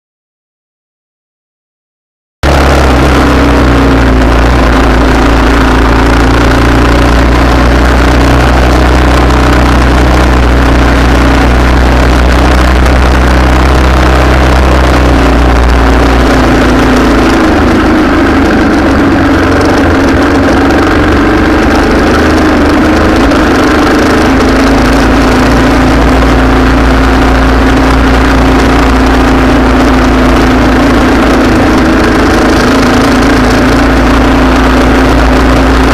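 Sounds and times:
vehicle engine idling: 0:02.4 - 0:35.9.

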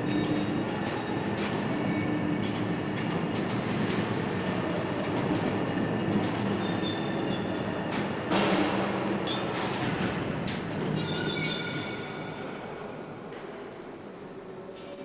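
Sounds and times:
high crane squeals: 0:00.0 - 0:02.5, 0:05.7 - 0:07.7, 0:10.9 - 0:12.9
overhead crane hum and rumble: 0:00.0 - 0:14.8.

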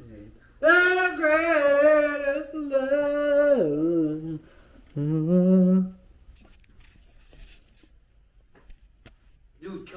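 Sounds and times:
man singing held notes: 0:00.6 - 0:06.0.

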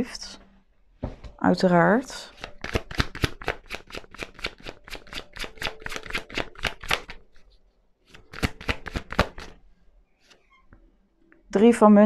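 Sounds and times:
cards being shuffled: 0:02.3 - 0:07.2, 0:08.1 - 0:09.6.

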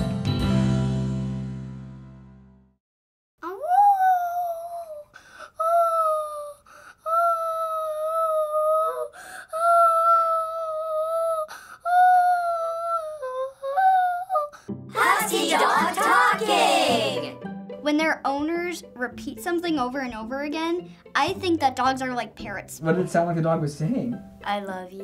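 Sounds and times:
girl singing high notes: 0:03.4 - 0:17.4.

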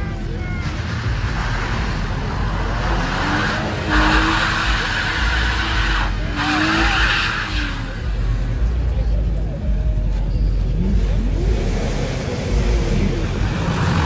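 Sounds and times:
tyres sliding on wet asphalt: 0:00.6 - 0:08.8.

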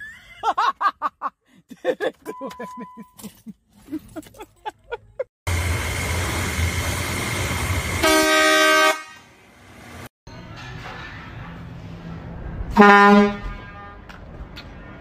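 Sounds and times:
air horn blast: 0:08.0 - 0:09.4, 0:12.7 - 0:14.0.

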